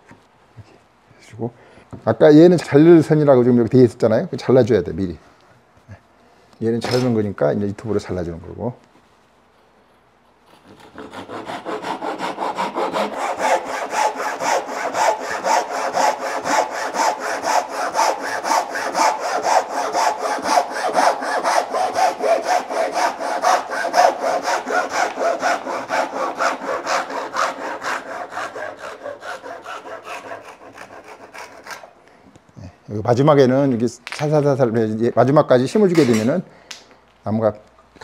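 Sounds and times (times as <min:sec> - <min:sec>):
handsaw rasping through wood: 0:10.5 - 0:31.9.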